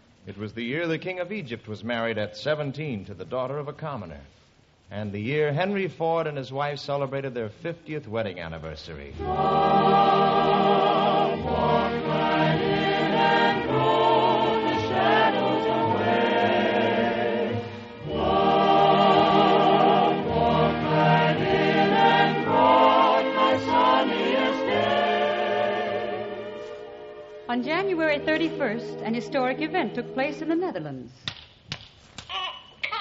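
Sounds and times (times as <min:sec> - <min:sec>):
mixed choir singing: 0:09.2 - 0:30.7.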